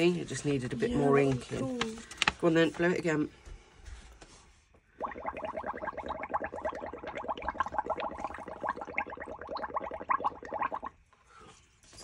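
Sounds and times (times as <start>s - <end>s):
bubbling through a straw: 5.0s - 11.0s.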